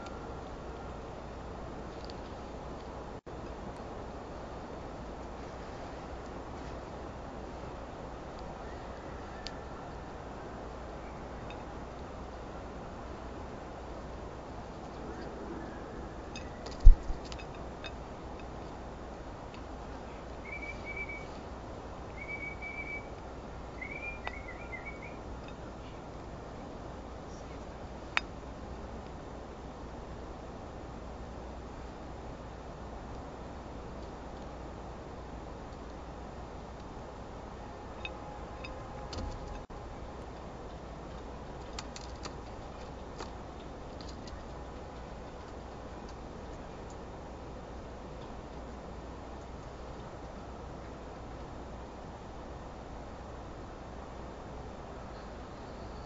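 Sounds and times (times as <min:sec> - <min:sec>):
background hiss: 0:00.0 - 0:56.0
rustle: 0:00.0 - 0:56.0
whistled notes: 0:20.4 - 0:21.4, 0:22.2 - 0:23.1, 0:23.8 - 0:25.2
birds clicking at seed feeder: 0:41.2 - 0:47.0.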